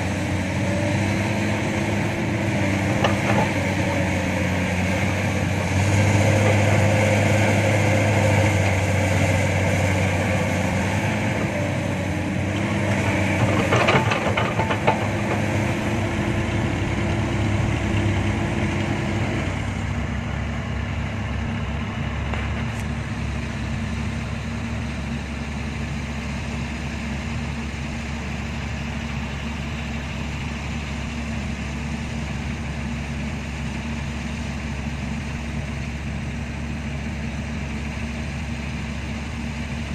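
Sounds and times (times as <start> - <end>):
heavy diesel engine running: 0.0 - 39.9
clanking knocks: 13.4 - 15.5.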